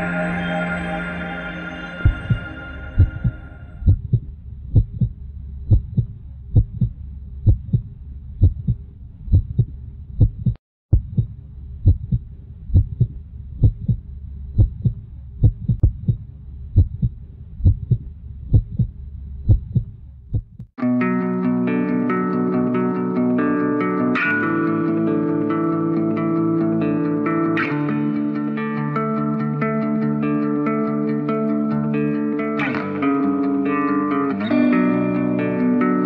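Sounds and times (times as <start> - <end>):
low hum: 0.0 - 20.7
heartbeat double thump: 2.1 - 20.7.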